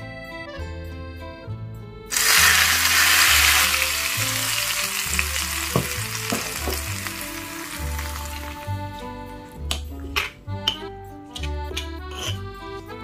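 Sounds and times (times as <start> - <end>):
hot oil sizzling on chilli paste: 2.1 - 8.8.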